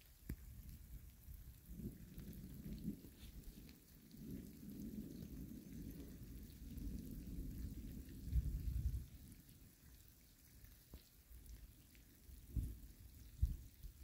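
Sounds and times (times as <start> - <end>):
thunder rumbling: 1.4 - 9.8.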